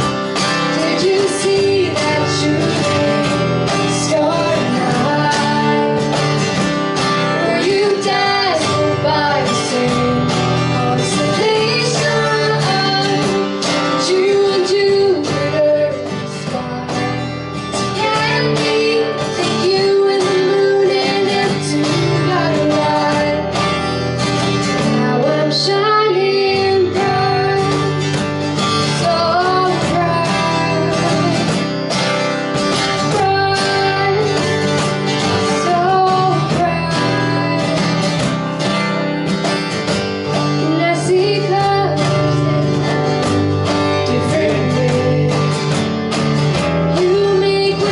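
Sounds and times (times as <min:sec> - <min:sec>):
cajon: 0:00.0 - 0:47.9
strummed acoustic guitars: 0:00.0 - 0:47.9
woman singing: 0:00.4 - 0:38.6, 0:40.0 - 0:47.9.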